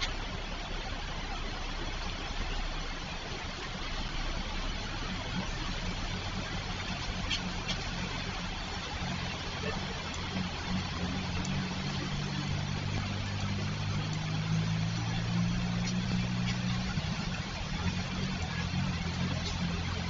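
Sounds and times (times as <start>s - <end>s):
car engines humming: 0.0s - 20.0s
constant hiss: 0.0s - 20.0s.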